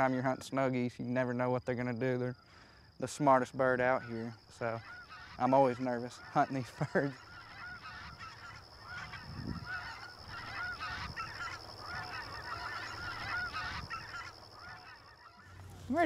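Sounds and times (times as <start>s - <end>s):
flock of geese honking: 3.6s - 16.0s.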